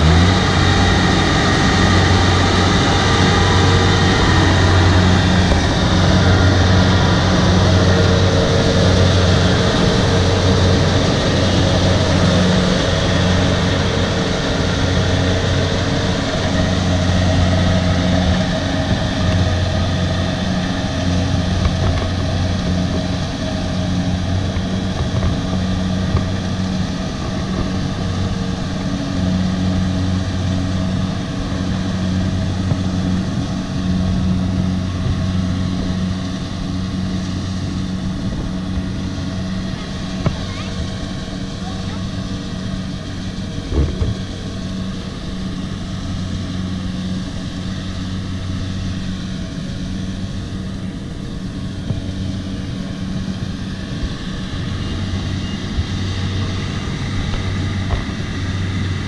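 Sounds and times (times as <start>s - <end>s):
combine harvester diesel engine: 0.0s - 59.0s.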